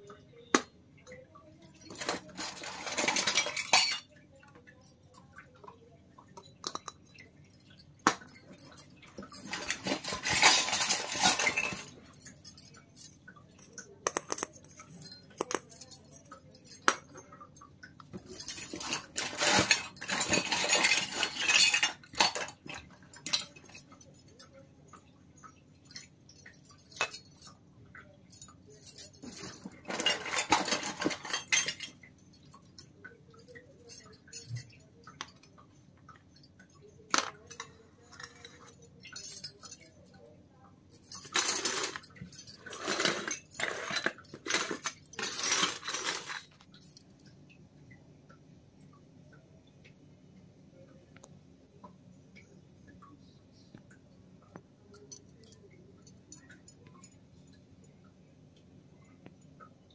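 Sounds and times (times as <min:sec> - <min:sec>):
toy metal pots clinking: 0:00.0 - 0:40.3, 0:40.9 - 0:47.3.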